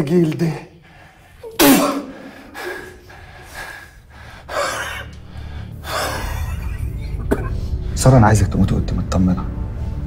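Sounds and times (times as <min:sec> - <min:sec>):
man breathing heavily: 0:00.8 - 0:06.3.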